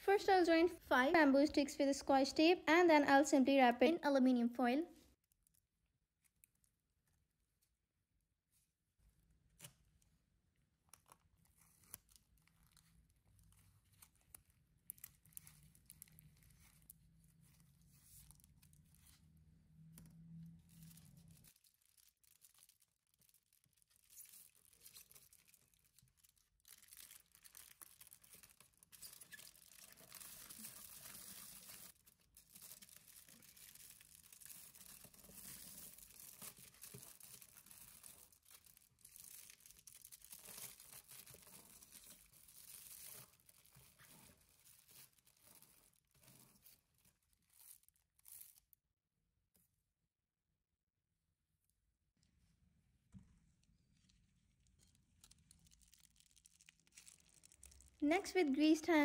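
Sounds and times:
aluminium foil crinkling: 10.9 - 48.8, 53.7 - 58.7
sticks and tape rustling: 11.0 - 48.7, 53.8 - 58.2.

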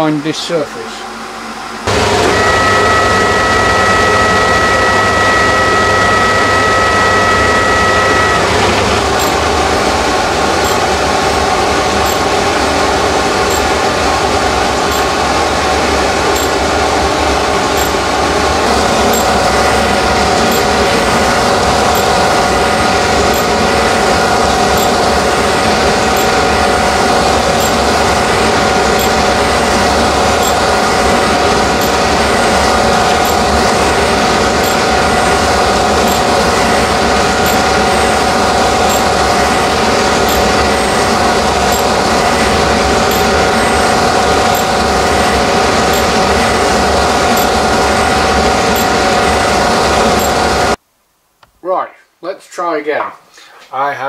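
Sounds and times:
surface grinder grinding: 1.9 - 10.9.

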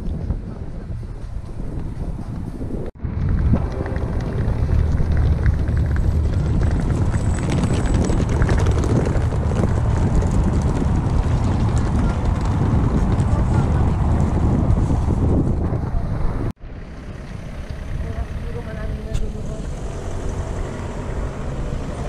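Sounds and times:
wind buffeting microphone: 0.0 - 22.0
faint outdoor background noise: 15.6 - 22.0.

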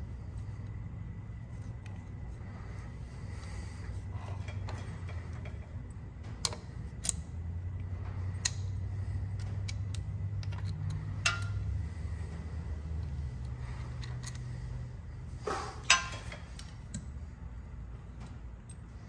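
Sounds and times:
low steady hum: 0.0 - 19.0
metal clinks and taps: 9.4 - 11.6.

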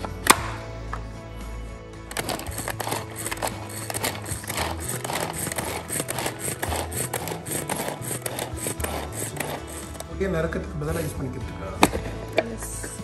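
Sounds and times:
pull-cord food chopper clicking: 2.1 - 10.1.

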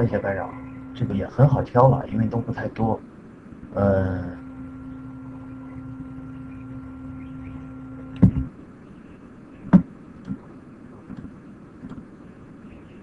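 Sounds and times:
low hum: 0.0 - 13.0
sharp knocks: 8.2 - 8.5.

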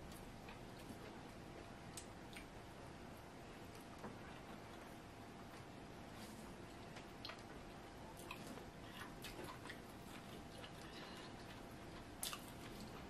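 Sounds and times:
wet chewing and mouth smacks: 1.9 - 2.6, 8.2 - 13.0.

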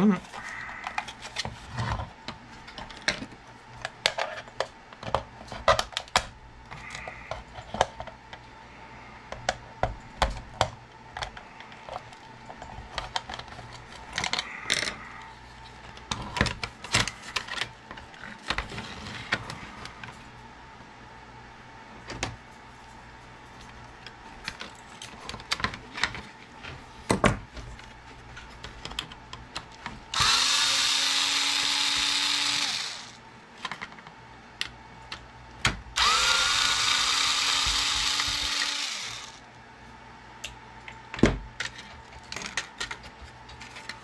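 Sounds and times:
plastic parts clicking and knocking: 24.5 - 26.3, 28.6 - 30.4, 41.2 - 44.0
cordless drill running: 30.1 - 33.2, 36.0 - 39.4.

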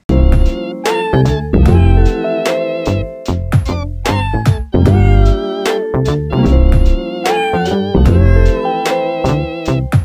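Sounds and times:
music with beat and deep bass: 0.1 - 10.0.

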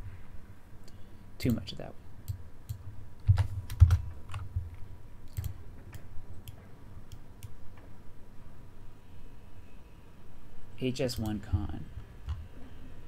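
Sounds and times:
computer keyboard typing: 2.3 - 7.6.

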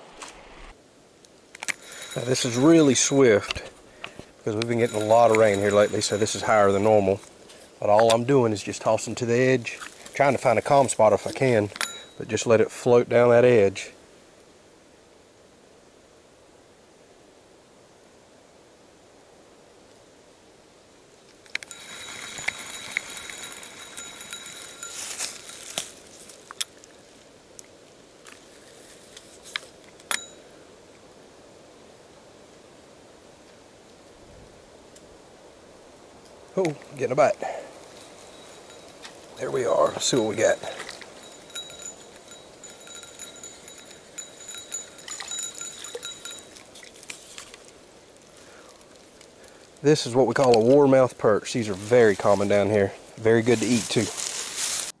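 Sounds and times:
fishing reel whirring: 21.6 - 25.0.

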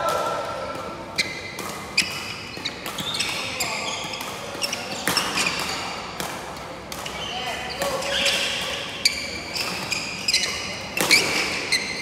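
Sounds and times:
shoes squeaking on wooden floor: 2.0 - 5.6, 7.0 - 12.0.

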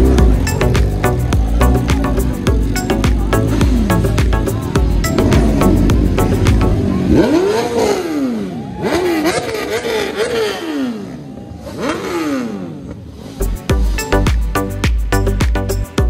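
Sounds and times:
music with a beat: 0.0 - 6.9, 13.4 - 16.0
engine revving: 0.0 - 14.3.

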